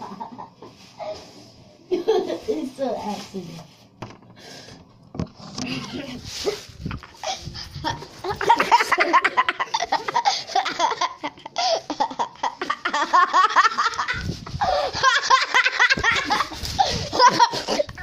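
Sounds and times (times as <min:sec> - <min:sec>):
kids laughing: 0:00.0 - 0:00.8, 0:01.9 - 0:02.5, 0:05.7 - 0:18.0.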